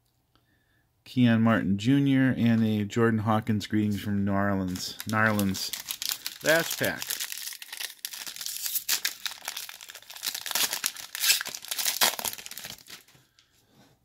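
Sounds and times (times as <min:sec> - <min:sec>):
plastic wrapper tearing and crinkling: 0:04.7 - 0:13.1.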